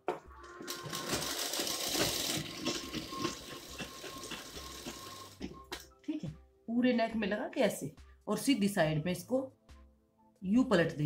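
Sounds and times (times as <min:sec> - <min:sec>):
sewing machine clattering: 0:00.7 - 0:05.6.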